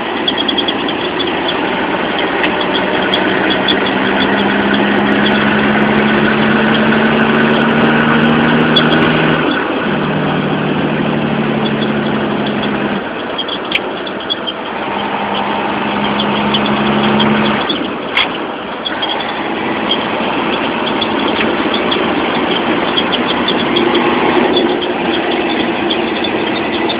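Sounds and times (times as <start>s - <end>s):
diesel truck engine drone: 0.0s - 26.9s
road and cab noise: 0.0s - 26.9s.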